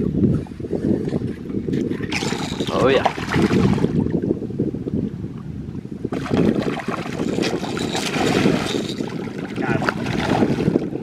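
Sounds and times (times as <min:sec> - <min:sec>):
wind rumble on microphone: 0:00.0 - 0:11.0
fish splashing at water surface: 0:06.2 - 0:10.7.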